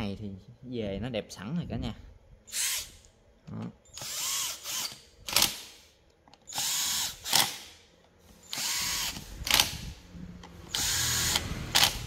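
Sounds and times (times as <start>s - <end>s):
power screwdriver whirring: 4.0s - 5.6s, 6.5s - 7.7s, 8.4s - 9.9s, 10.7s - 12.0s.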